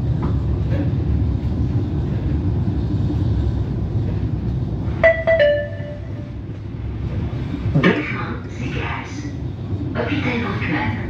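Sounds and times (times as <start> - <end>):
tram running rumble: 0.0 - 11.0
passenger information chime: 5.0 - 6.4.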